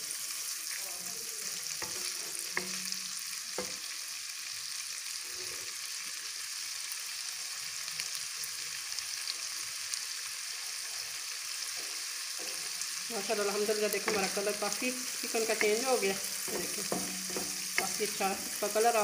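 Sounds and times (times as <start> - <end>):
chicken sizzling in a wok: 0.0 - 19.0
spatula knocking against pan: 1.8 - 3.8, 14.0 - 14.6, 15.6 - 18.8.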